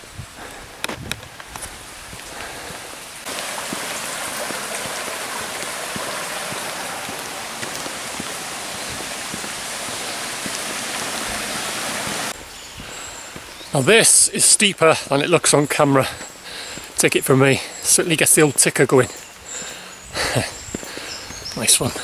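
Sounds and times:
stream water rushing: 1.8s - 12.4s.

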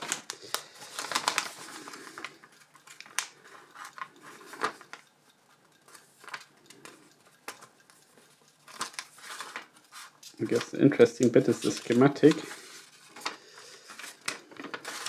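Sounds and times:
paper rustling and crinkling: 0.0s - 2.3s, 8.7s - 15.0s.

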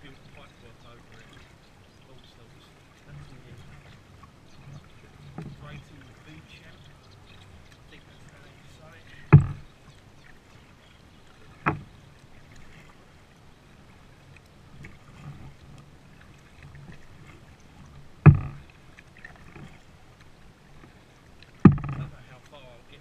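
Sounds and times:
paddle in water: 0.0s - 23.0s
hollow knocks on kayak hull: 9.3s - 9.7s, 11.5s - 12.0s, 18.2s - 19.8s, 20.8s - 22.1s.

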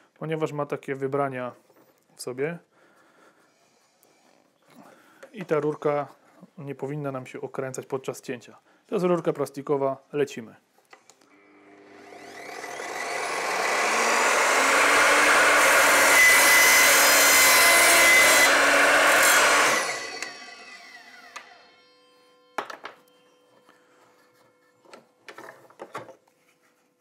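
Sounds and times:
mitre saw motor whining: 11.3s - 23.4s
saw blade cutting plastic pipe: 12.1s - 21.7s.

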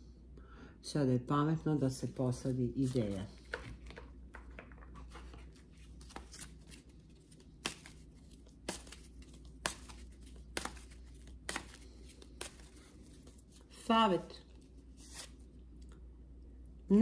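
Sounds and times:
cards being shuffled: 2.3s - 13.8s, 14.4s - 15.9s.

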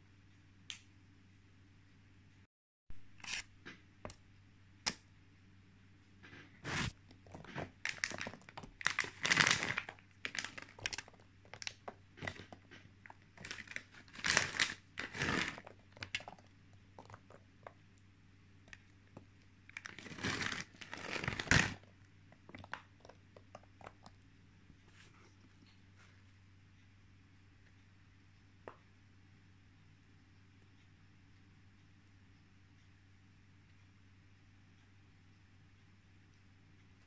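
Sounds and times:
raisins crinkling and rustling: 6.2s - 17.8s, 19.7s - 22.8s.

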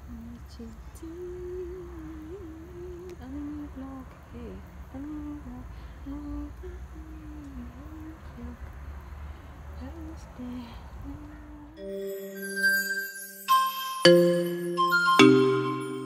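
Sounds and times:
low steady rumble: 0.0s - 11.8s.

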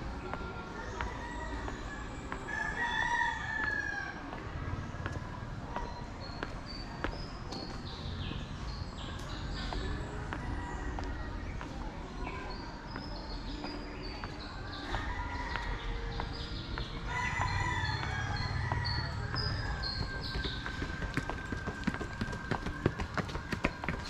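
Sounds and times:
small birds chirping: 4.8s - 24.0s
rooster crowing: 17.1s - 19.3s.

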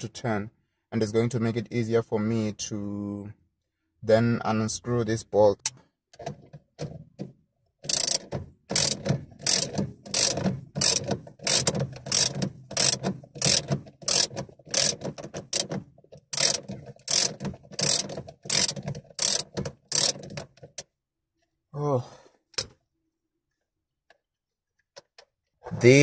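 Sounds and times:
ratchet wrench clicking: 7.8s - 15.7s, 16.3s - 20.4s.

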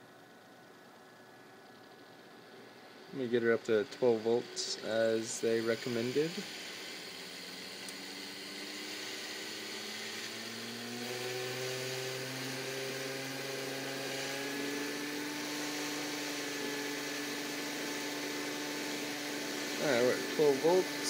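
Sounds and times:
motor whirring with humming tones: 0.0s - 21.0s.

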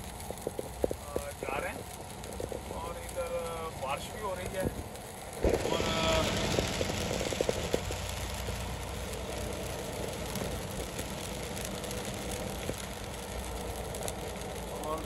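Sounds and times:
tyres hissing on wet road: 0.0s - 15.0s.

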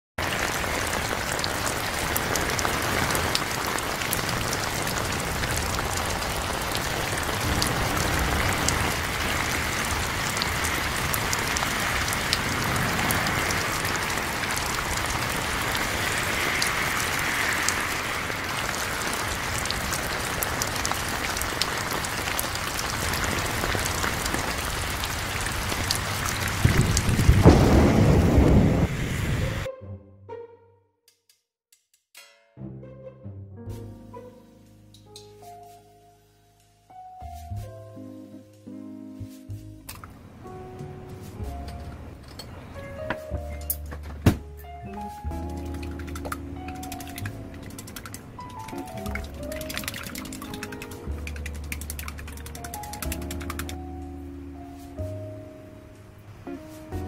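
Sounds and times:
steady rain falling: 0.2s - 29.7s, 39.9s - 44.0s, 44.9s - 57.0s
low rumble: 26.1s - 29.7s.

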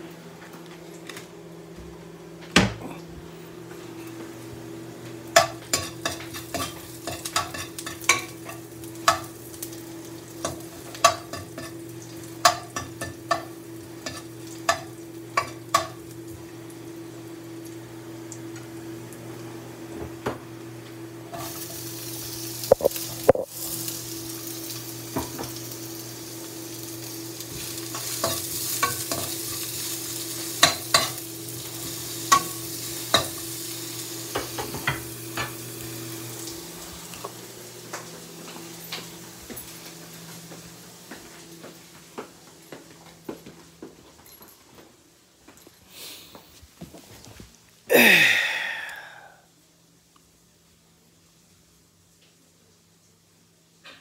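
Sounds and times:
garlic sizzling in oil: 4.3s - 19.9s, 20.5s - 42.0s.

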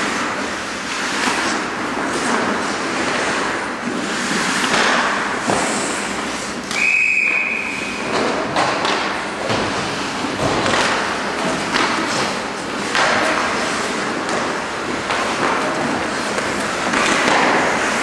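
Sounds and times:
knocks of sticks puck and boards: 0.0s - 18.0s
hiss of skating: 0.1s - 6.6s
referee's whistle blast: 6.7s - 8.0s.

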